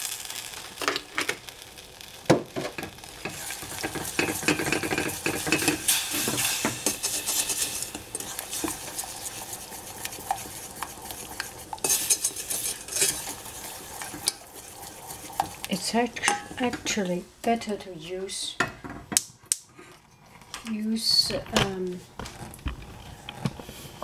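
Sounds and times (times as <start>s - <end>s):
wooden spoon scraping saucepan: 3.2s - 17.1s.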